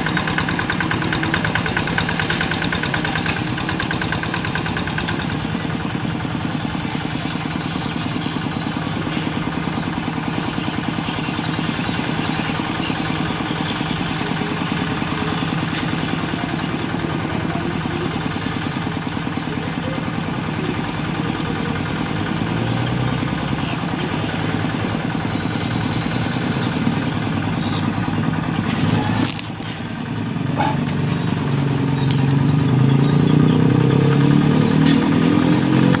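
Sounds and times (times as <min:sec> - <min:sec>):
hand tractor engine chugging: 0:00.0 - 0:36.0.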